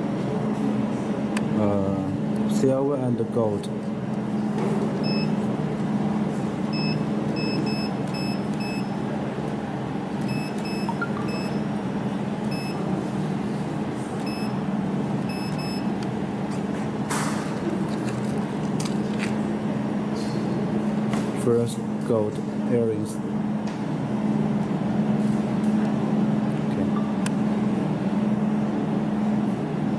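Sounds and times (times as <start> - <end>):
steady low hum: 0.0 - 29.9
short high beeps: 10.3 - 11.6.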